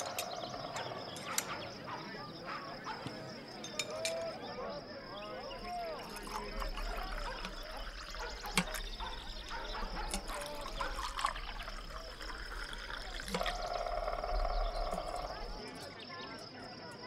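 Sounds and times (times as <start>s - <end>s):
water trickling and bubbling: 5.3s - 15.8s.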